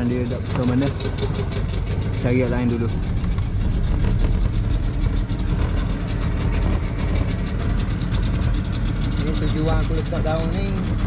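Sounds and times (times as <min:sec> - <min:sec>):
small boat engine running: 0:00.0 - 0:11.0.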